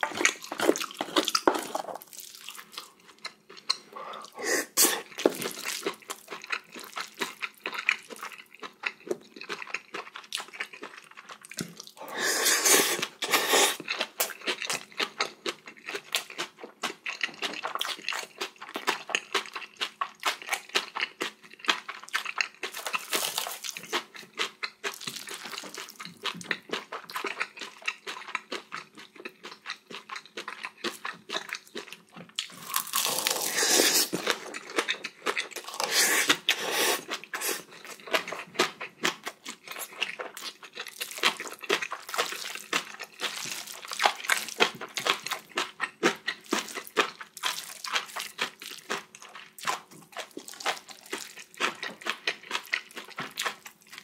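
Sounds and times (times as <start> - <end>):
person chewing and crunching food: 0.0 - 54.0.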